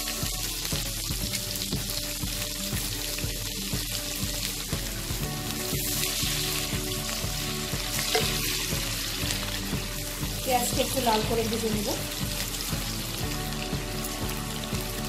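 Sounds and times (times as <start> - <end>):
onions sizzling in oil: 0.0 - 15.0.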